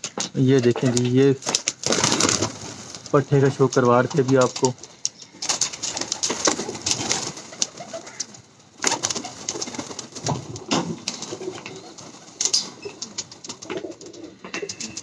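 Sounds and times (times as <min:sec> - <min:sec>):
wing flaps: 0:00.8 - 0:04.8, 0:05.4 - 0:15.0
pigeons cooing: 0:05.2 - 0:15.0.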